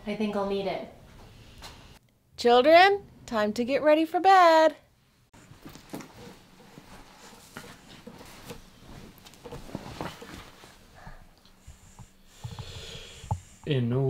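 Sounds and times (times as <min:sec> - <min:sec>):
faint rustling: 0:05.4 - 0:13.4.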